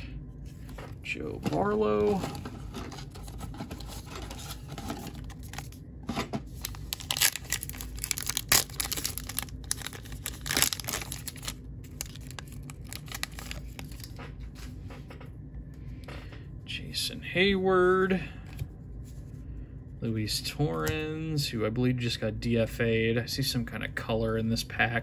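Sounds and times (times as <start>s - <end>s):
foil wrapper tearing and crinkling: 6.6s - 14.1s.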